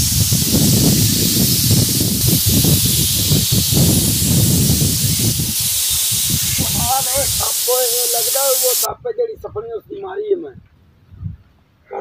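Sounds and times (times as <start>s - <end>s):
snake hiss: 0.0s - 8.9s.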